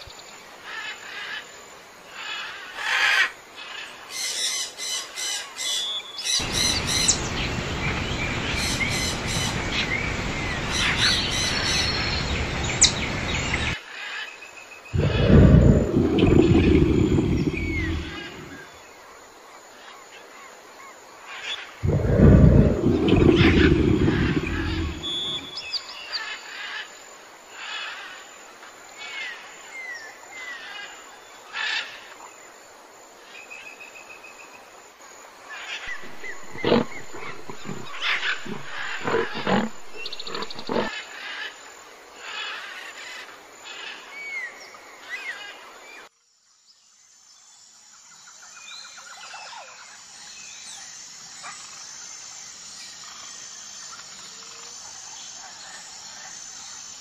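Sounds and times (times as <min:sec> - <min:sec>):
insect chirping: 0:00.0 - 0:13.8, 0:14.4 - 0:29.7, 0:32.3 - 0:45.0, 0:49.9 - 0:57.0
birds chirping and calling: 0:06.3 - 0:13.8, 0:15.0 - 0:18.6, 0:21.8 - 0:25.7, 0:35.9 - 0:40.9
tiger roar: 0:15.0 - 0:18.6, 0:21.8 - 0:25.6, 0:35.9 - 0:41.0.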